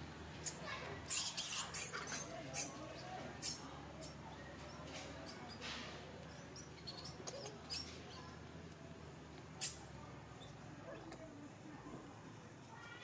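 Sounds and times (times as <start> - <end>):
infant monkey squeaking: 0.4 - 5.7, 6.3 - 8.3, 9.6 - 9.8.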